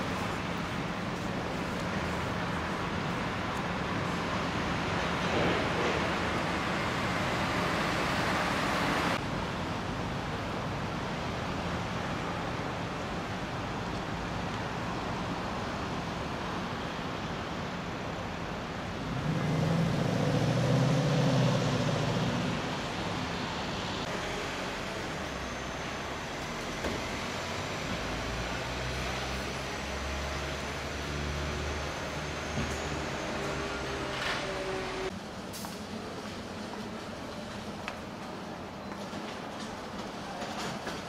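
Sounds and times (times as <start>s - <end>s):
road traffic: 0.0s - 41.0s
heavy vehicle engine passing: 19.0s - 36.0s.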